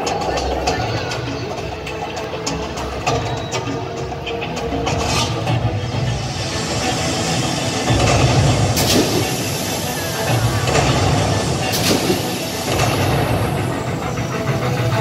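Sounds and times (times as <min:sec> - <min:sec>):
sharp rushing hits: 0:05.0 - 0:15.0.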